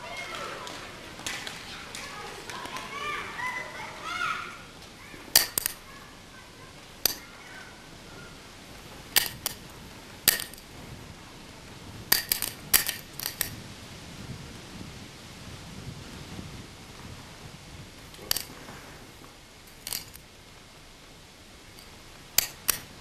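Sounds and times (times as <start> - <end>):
sharp clicks and clinks: 5.3 - 5.8, 7.0 - 7.3, 9.2 - 9.6, 10.3 - 10.7, 12.1 - 13.6, 18.2 - 18.5, 19.7 - 20.2, 21.8 - 22.9.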